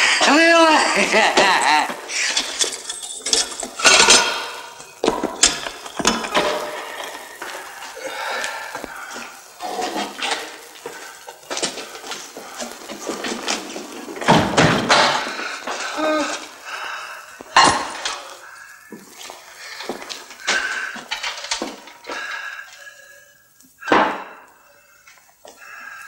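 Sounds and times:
knocks and clattering: 1.2s - 7.7s, 9.6s - 15.9s, 17.4s - 18.3s
rustling and thumping: 1.9s - 7.9s, 8.5s - 16.6s
grunts and cries: 15.0s - 19.0s.

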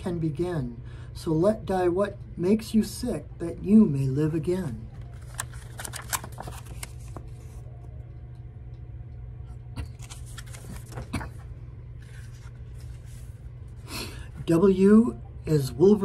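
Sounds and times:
steady low hum: 0.0s - 16.0s
book clicks and rustles: 5.0s - 7.7s, 9.8s - 13.4s.

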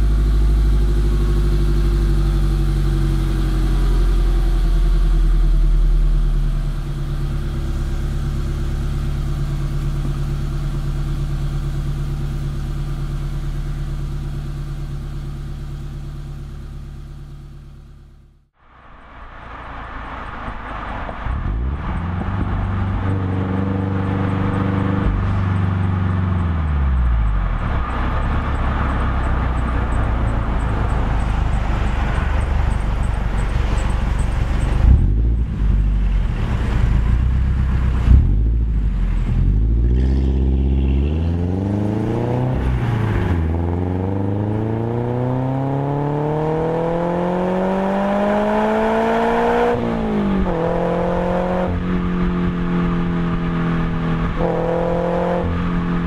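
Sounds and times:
car engine idling: 0.0s - 44.9s
car engine driving: 0.0s - 56.0s.

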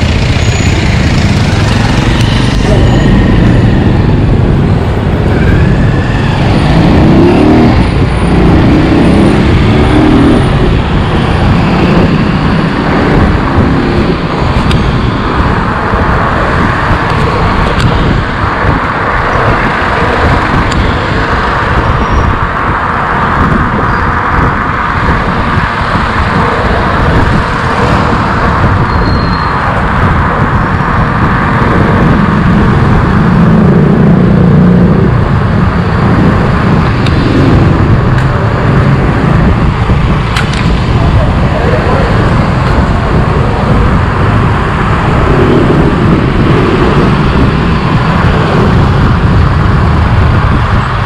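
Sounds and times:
motor tricycle engine: 0.0s - 14.8s
street traffic passing: 0.0s - 51.0s
wind on microphone: 0.0s - 51.0s.

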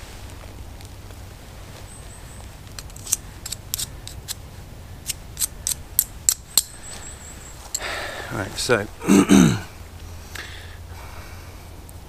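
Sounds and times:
sharp crisp clicks: 5.0s - 6.8s.

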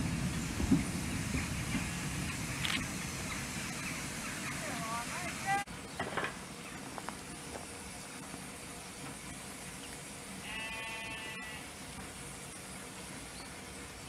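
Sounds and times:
steady background noise: 0.0s - 14.0s
sheep bleating: 10.4s - 11.7s.

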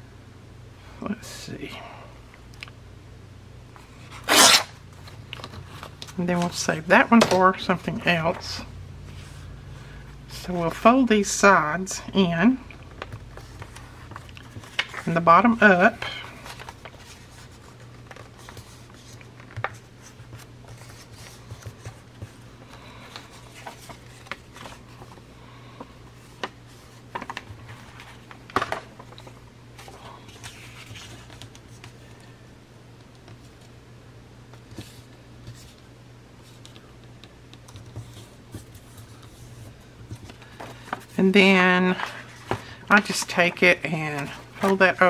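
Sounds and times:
low steady hum: 0.0s - 45.0s
paper rustling and crinkling: 3.8s - 9.4s, 12.9s - 32.4s, 37.7s - 45.0s.

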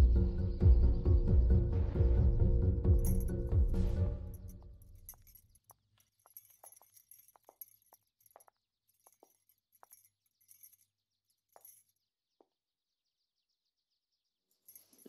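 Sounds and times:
jewellery clinking and jingling: 3.0s - 12.3s, 14.5s - 15.0s.

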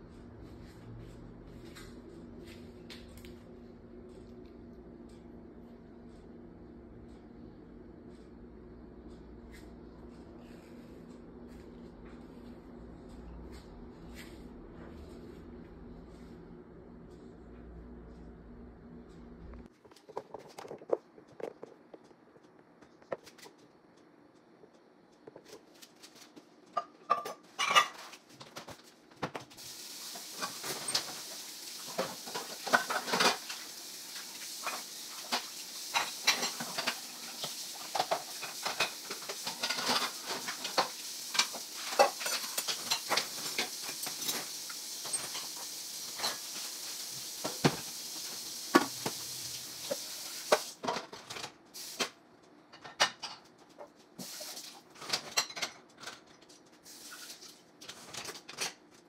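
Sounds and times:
dishes and cutlery clinking: 26.8s - 28.2s, 32.0s - 33.6s, 34.6s - 46.6s, 55.0s - 56.3s.

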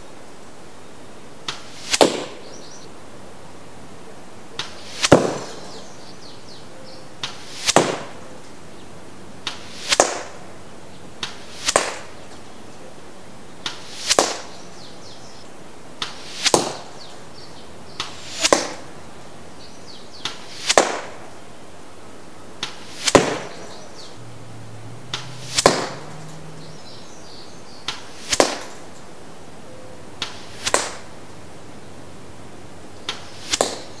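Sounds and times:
arrows whooshing into target: 1.5s - 2.4s, 4.6s - 5.9s, 7.2s - 8.2s, 9.4s - 10.4s, 11.2s - 12.2s, 13.6s - 14.6s, 16.0s - 16.9s, 18.0s - 18.9s, 20.2s - 21.3s, 22.6s - 27.0s, 27.8s - 29.1s, 30.2s - 31.2s, 33.1s - 34.0s.

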